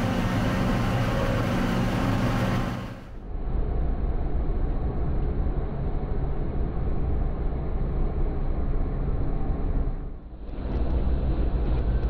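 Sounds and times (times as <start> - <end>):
forage harvester rumbling: 0.0 - 3.1.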